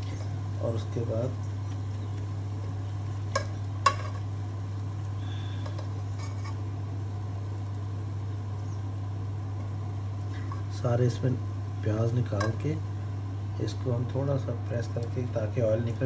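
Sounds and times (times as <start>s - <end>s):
oil sizzling: 0.0s - 16.0s
steady low hum: 0.0s - 16.0s.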